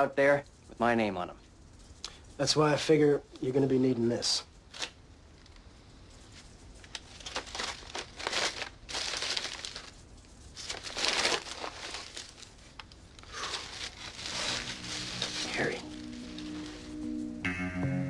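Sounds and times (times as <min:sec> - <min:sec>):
paper bag crinkling: 0:06.8 - 0:17.1
soft music: 0:14.0 - 0:18.0.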